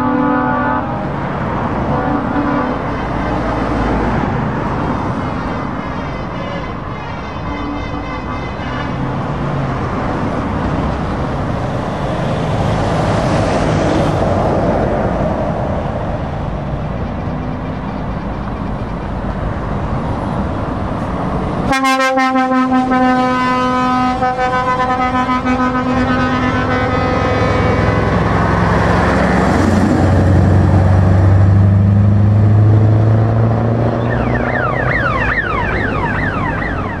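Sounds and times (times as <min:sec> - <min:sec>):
truck air horn: 0:00.0 - 0:01.1, 0:01.8 - 0:03.6, 0:05.1 - 0:09.4, 0:21.7 - 0:28.3
diesel truck engine: 0:00.0 - 0:37.0
heavy trucks driving past: 0:00.0 - 0:37.0.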